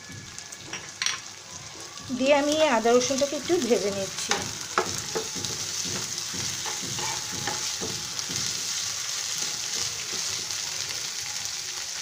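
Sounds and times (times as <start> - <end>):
vegetables sizzling in oil: 0.0 - 12.0
spatula scraping a pan: 5.0 - 10.6.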